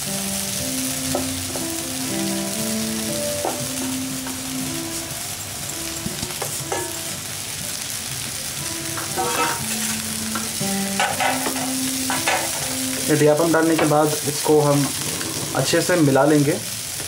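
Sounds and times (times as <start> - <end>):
oil sizzling in a pan: 0.0 - 17.0
faint background tune: 0.8 - 16.6
wooden spatula scraping pan: 9.0 - 10.0.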